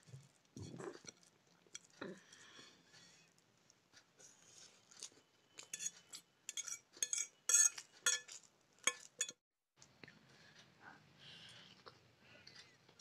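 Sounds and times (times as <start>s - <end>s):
cutlery clinking on ceramic plate: 5.6s - 9.4s.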